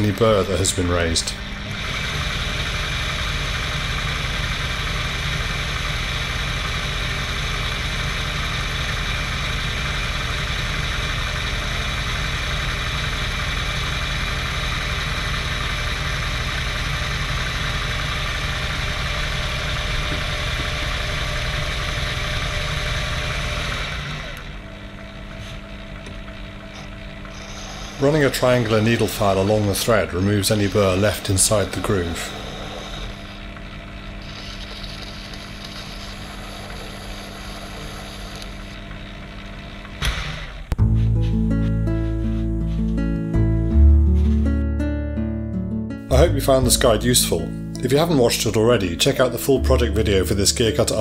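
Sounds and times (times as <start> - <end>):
lathe humming and whining: 0.0 - 41.0, 46.2 - 51.0.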